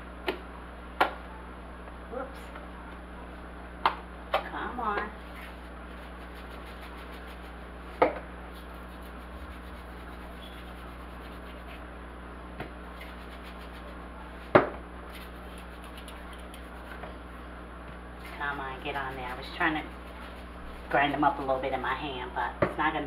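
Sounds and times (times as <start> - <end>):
herbs crumbled between fingers: 15.1 - 16.9.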